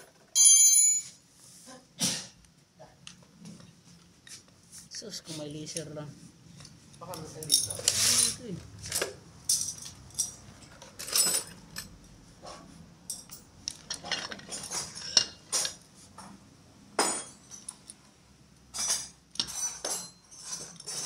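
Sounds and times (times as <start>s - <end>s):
metal tools clinking: 6.6s - 12.0s, 13.0s - 15.8s, 17.0s - 18.1s, 18.7s - 21.0s.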